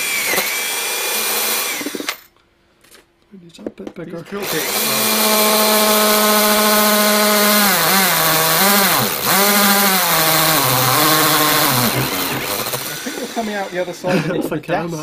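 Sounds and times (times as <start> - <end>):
cordless drill motor running: 0.0 - 2.2, 4.4 - 14.1.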